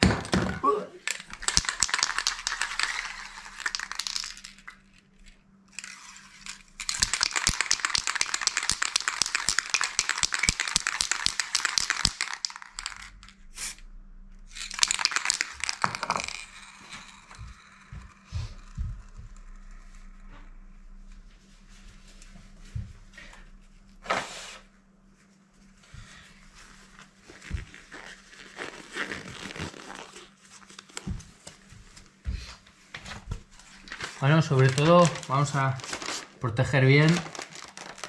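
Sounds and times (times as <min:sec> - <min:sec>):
spray can ball rattling: 0:01.0 - 0:13.8, 0:14.5 - 0:19.8, 0:33.9 - 0:38.0.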